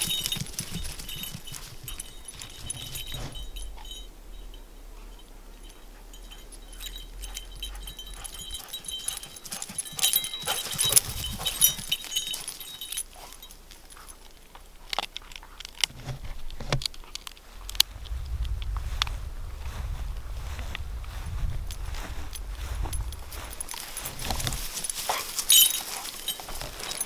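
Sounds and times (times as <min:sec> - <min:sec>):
metal tags jingling on dog collar: 0:00.0 - 0:15.8, 0:21.6 - 0:27.0.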